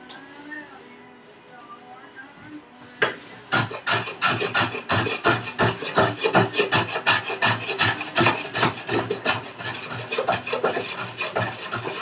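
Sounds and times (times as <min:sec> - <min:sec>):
hand tool shaving wood: 0:03.5 - 0:12.0.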